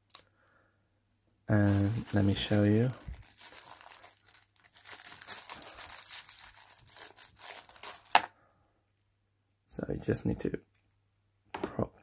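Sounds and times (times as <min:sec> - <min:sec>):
plastic bag crinkling: 0:01.5 - 0:08.3.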